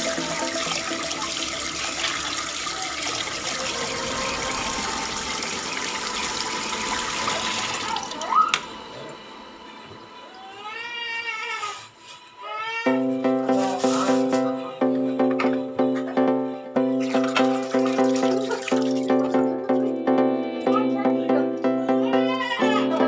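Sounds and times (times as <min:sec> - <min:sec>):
water running from tap: 0:00.0 - 0:09.3, 0:17.0 - 0:20.0.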